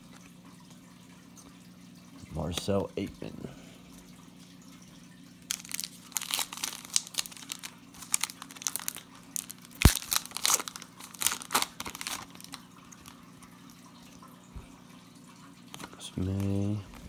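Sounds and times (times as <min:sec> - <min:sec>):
foil wrapper crinkling and tearing: 0:05.5 - 0:13.3.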